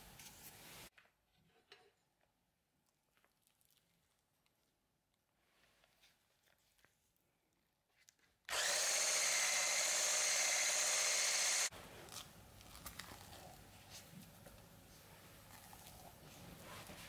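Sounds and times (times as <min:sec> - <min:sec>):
hand blender motor running: 0:08.5 - 0:11.7.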